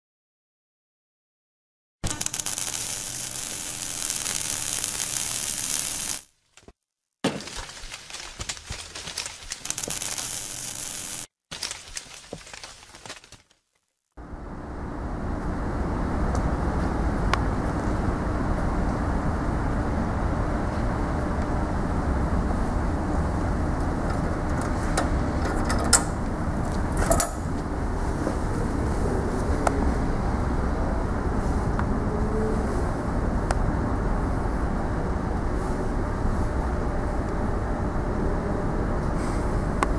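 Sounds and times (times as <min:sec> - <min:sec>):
sizzling crackling sparks: 0:02.0 - 0:06.3, 0:09.5 - 0:11.3
belt sander motor hum: 0:02.1 - 0:06.2, 0:09.7 - 0:11.3.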